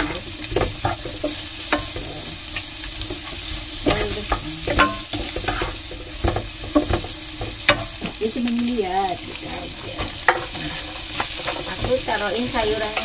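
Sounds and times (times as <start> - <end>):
onions sizzling in oil: 0.0 - 13.0
wooden spatula scraping pan: 3.0 - 8.2, 9.2 - 13.0.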